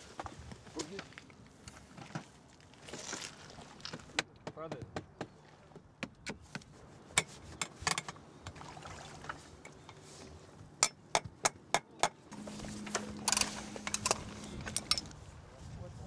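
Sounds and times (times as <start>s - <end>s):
hands handling metal parts: 12.3s - 15.2s
faint low hum: 12.3s - 16.0s.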